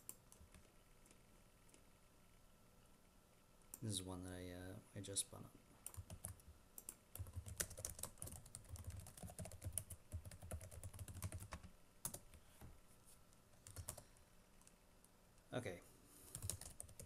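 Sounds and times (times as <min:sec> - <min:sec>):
typing on a keyboard: 0:05.8 - 0:12.3, 0:13.6 - 0:14.0, 0:16.3 - 0:17.0.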